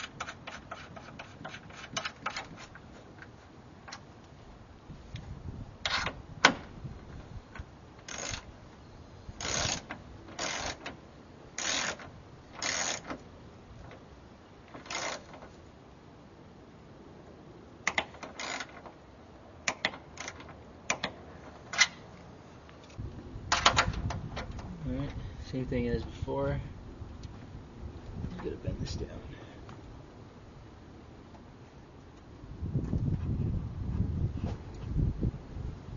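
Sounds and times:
torque wrench ratcheting: 8.0 - 8.5, 9.4 - 10.9, 11.6 - 12.0, 12.6 - 13.1, 14.8 - 15.3, 17.9 - 18.8.

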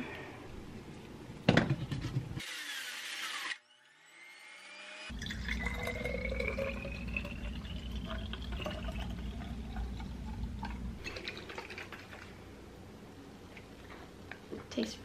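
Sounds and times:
juice pouring into glass bottles: 5.1 - 12.4.

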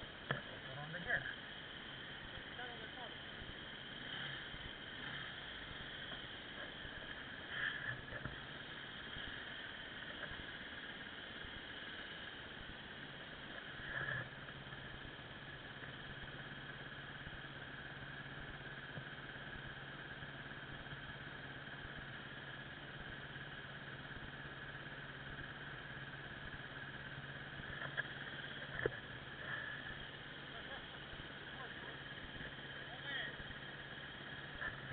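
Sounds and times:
motorcycle engine idling: 13.1 - 34.9.

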